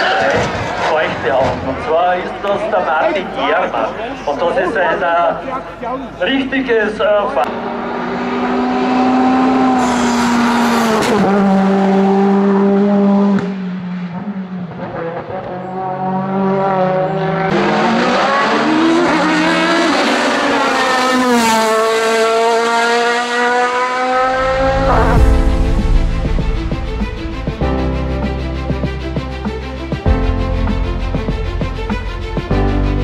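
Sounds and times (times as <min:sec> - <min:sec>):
race car engine accelerating: 0:07.4 - 0:29.8
deep low rumble: 0:24.2 - 0:33.0.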